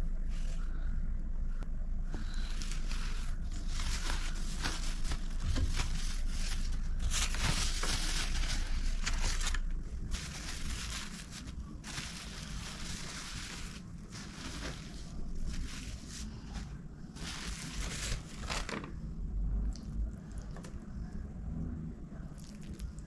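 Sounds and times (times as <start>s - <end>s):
plastic wrap crinkling: 2.3s - 19.0s.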